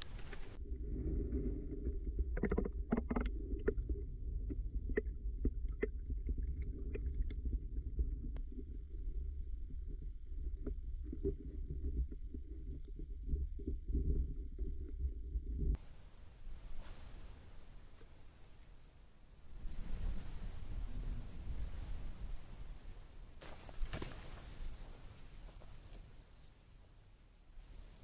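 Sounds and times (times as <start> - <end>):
underwater rumble: 0.0 - 17.6, 19.5 - 23.0
sharp clicks and ticks: 2.4 - 3.8.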